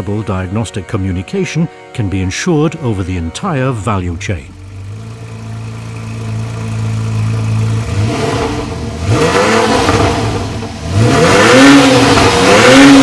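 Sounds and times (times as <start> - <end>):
car engine idling and revving: 4.1 - 13.0.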